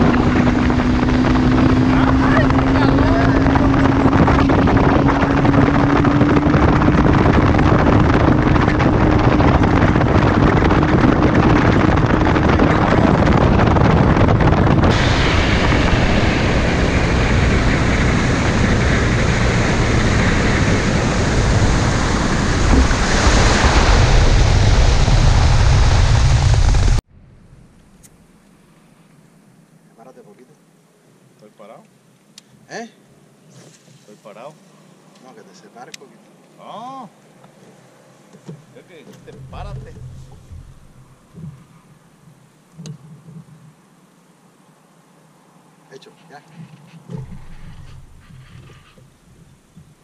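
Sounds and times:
boat motor running: 0.0 - 27.0, 38.3 - 43.4, 47.0 - 50.0
water rushing: 0.0 - 27.0, 38.7 - 41.8
wind on microphone: 0.0 - 27.0, 39.2 - 43.6, 46.6 - 50.0.

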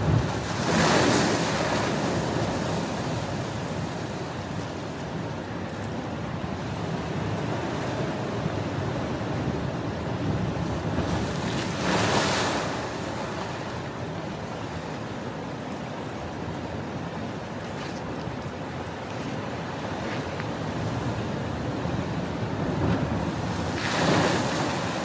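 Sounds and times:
wave splashing: 0.0 - 4.2, 22.7 - 25.0
sea surf washing over rocks: 0.0 - 15.5, 17.3 - 25.0
wind rumble on microphone: 0.0 - 25.0.

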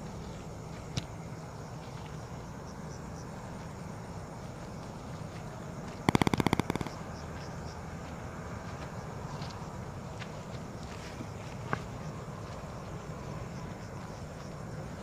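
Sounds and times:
footsteps and rustling outdoors: 0.0 - 6.1, 6.7 - 15.0
rapid rattle of sharp clicks: 6.1 - 7.1.

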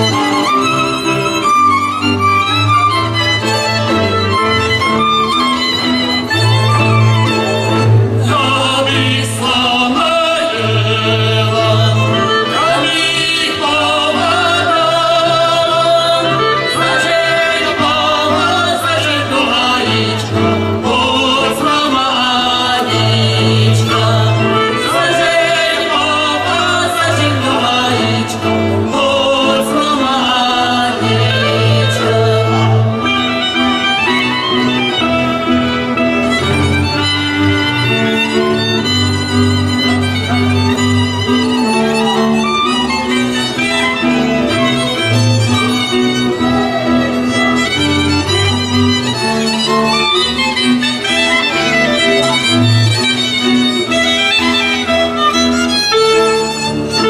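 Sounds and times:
fiddles playing dance tune: 0.0 - 57.0
voices singing along: 7.4 - 34.2.

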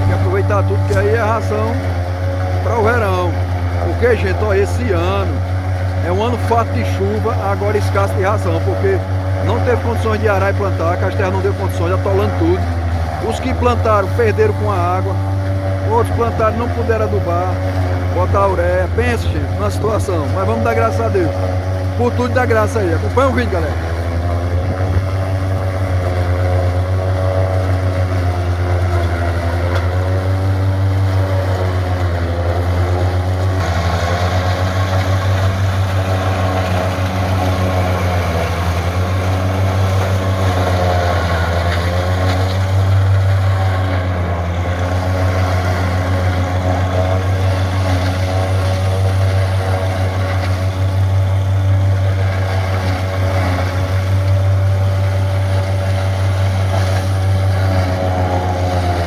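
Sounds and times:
forage chopper grinding stalks: 0.0 - 59.0
tractor diesel engine running: 0.0 - 59.0.

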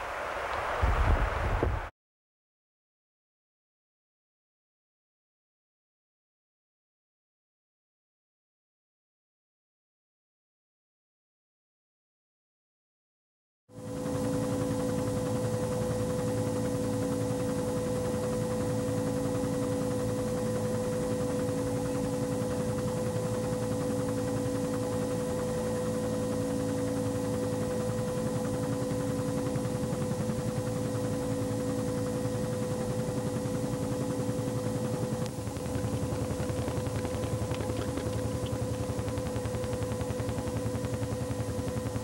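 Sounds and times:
aircraft cabin engine drone: 13.8 - 42.0
constant whine: 13.8 - 42.0.

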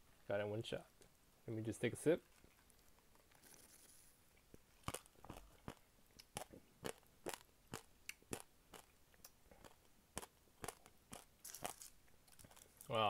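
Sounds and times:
chewing crunchy seeds: 4.8 - 12.9.

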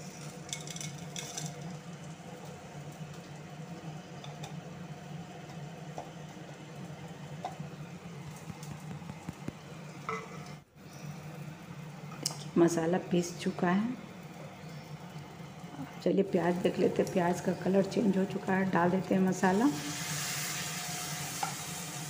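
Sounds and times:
onion sizzling in oil: 0.0 - 4.1, 10.8 - 22.0.

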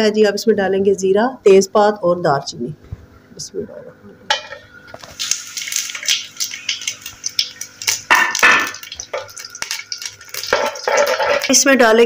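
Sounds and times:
spices sizzling in hot oil: 4.4 - 12.0
spoon scraping metal pot: 10.4 - 11.5.

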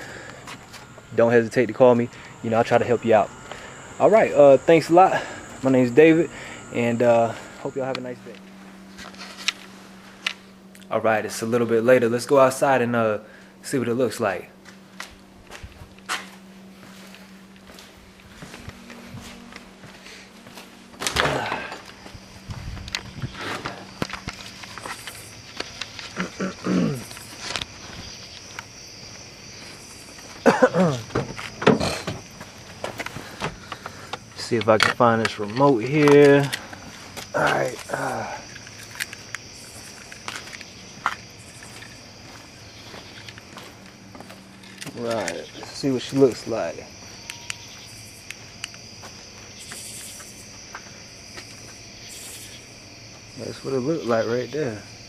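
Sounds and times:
footsteps: 0.0 - 2.8, 8.2 - 10.9, 14.6 - 53.3
crickets chirping: 0.0 - 55.0
insects trilling: 0.0 - 55.0.

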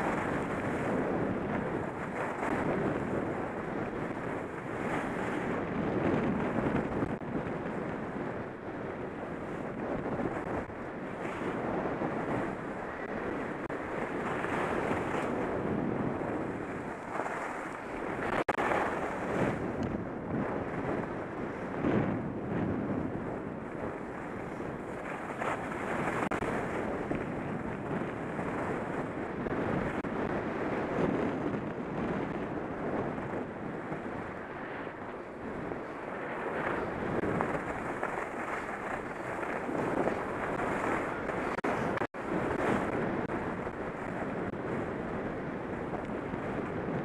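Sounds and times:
wind rushing over microphone: 0.0 - 47.0
skis scraping on snow: 16.4 - 19.6, 35.8 - 42.8.

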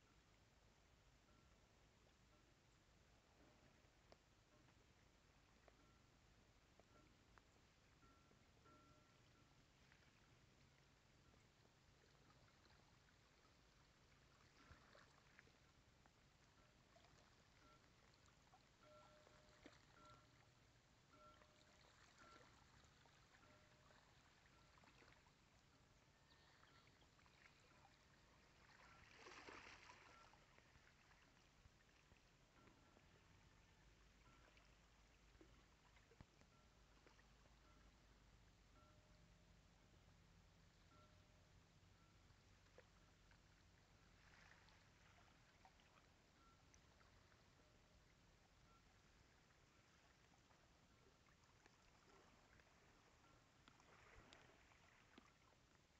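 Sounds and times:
faint lapping of ripples: 0.0 - 55.9
faint ticks: 3.4 - 27.6, 32.4 - 39.3, 51.5 - 55.9.

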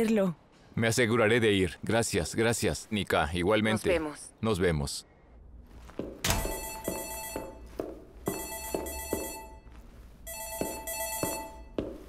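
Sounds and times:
telephone ringing: 6.3 - 9.7, 10.3 - 11.8.

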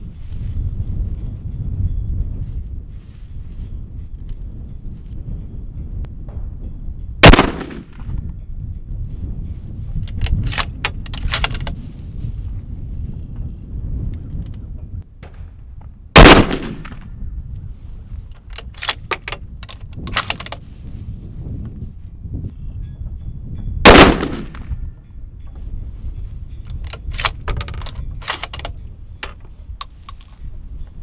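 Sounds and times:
rifle shots with echo: 7.2 - 8.0, 16.2 - 17.0, 23.8 - 24.7.

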